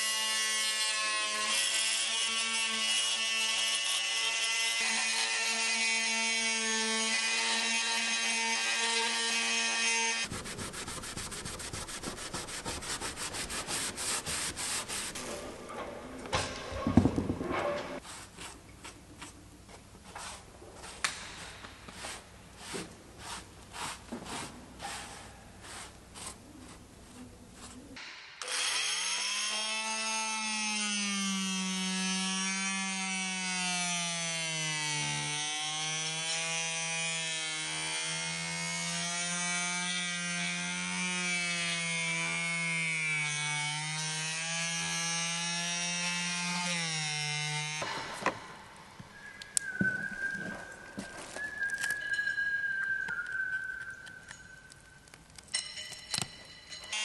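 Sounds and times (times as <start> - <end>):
cloth rubbing on fibreglass: 21.9 - 28.0
multi-tool buzzing whine: 28.4 - 48.6, 56.2 - 57.0.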